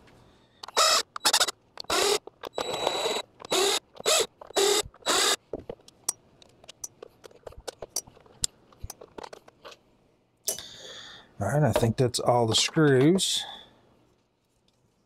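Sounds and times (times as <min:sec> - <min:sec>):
cordless screwdriver whirring: 0:00.6 - 0:05.4.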